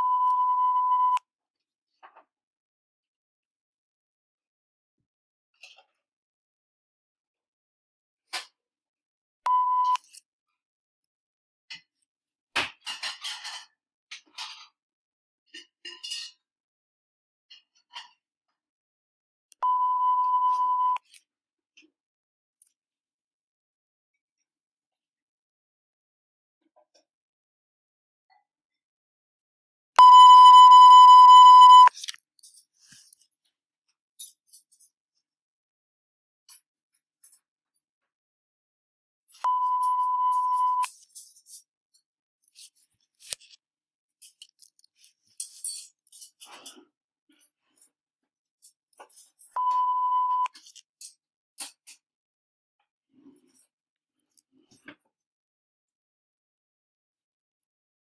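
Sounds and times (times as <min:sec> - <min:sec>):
electronic timer beep: 0:00.0 - 0:01.2, 0:09.5 - 0:10.0, 0:19.6 - 0:21.0, 0:30.0 - 0:31.9, 0:39.4 - 0:40.9, 0:49.6 - 0:50.5.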